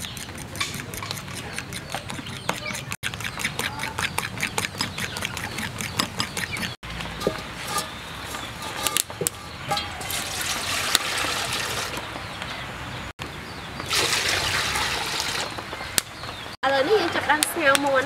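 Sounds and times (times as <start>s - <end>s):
water pouring into metal pot: 10.1s - 12.0s, 13.9s - 15.4s.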